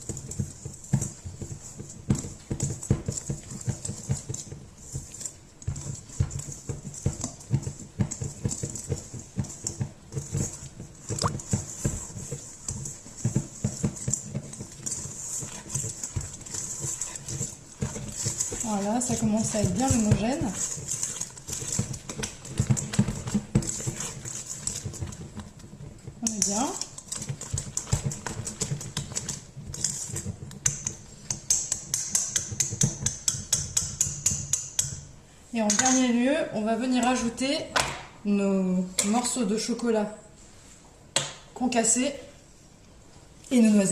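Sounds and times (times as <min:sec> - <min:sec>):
whisk clacking against metal bowl: 0:00.0 - 0:36.1.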